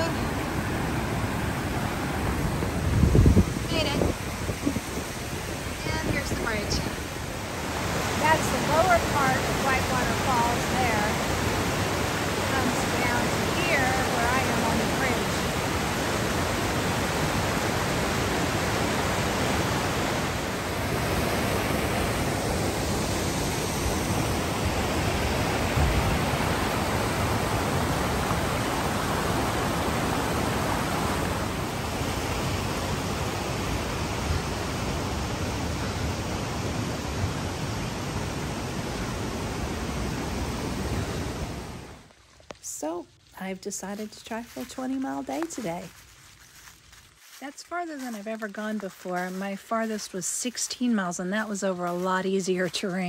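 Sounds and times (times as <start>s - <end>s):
river rushing: 0.0s - 42.1s.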